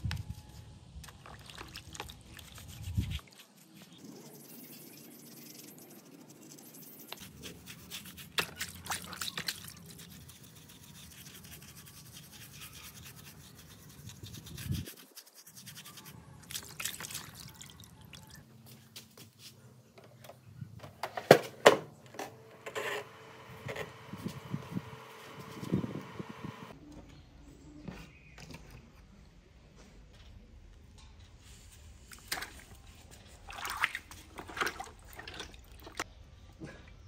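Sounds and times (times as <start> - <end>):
brush scrubbing circuit board: 9.6 - 16.2.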